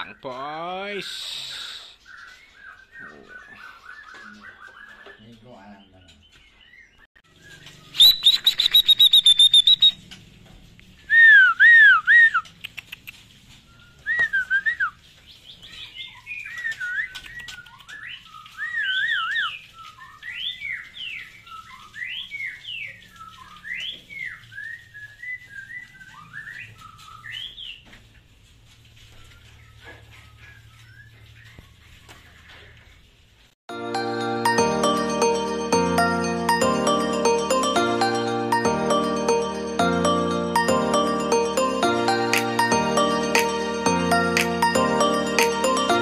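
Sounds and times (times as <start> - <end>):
bird singing whistled phrases: 7.4 - 10.0, 11.1 - 12.4, 13.7 - 15.0, 16.0 - 27.8.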